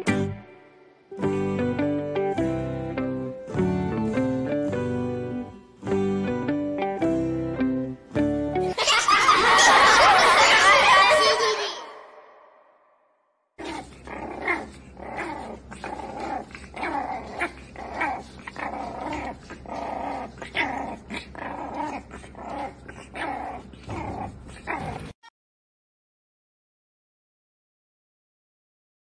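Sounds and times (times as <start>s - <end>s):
puppies growling and yapping: 13.6s - 25.2s.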